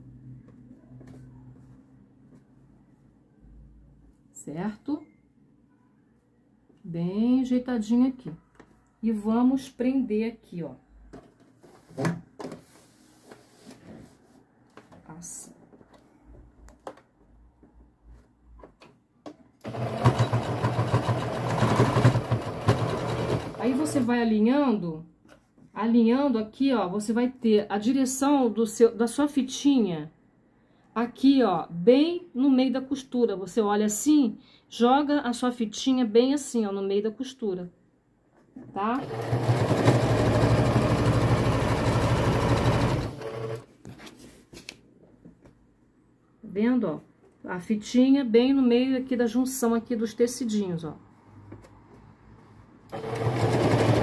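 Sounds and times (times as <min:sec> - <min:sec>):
sewing machine stitching: 0:19.6 - 0:24.1, 0:39.0 - 0:43.6, 0:52.9 - 0:54.0.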